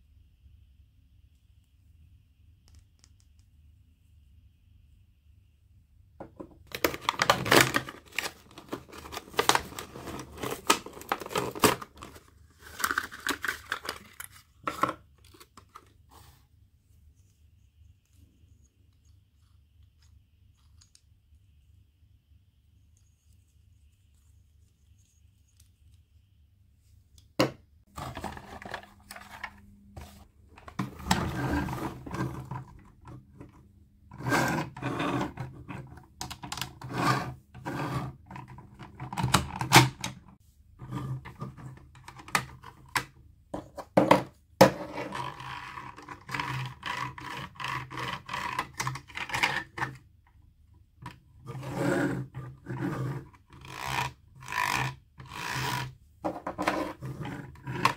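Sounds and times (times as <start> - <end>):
plastic packaging crinkling: 6.7 - 14.2.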